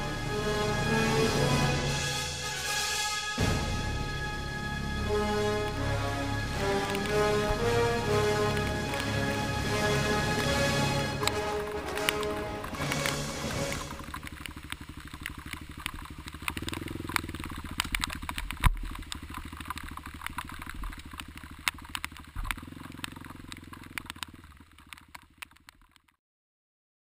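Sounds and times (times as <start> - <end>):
motorcycle engine running: 5.1 - 26.1
sharp clicks and rattles: 6.6 - 26.2.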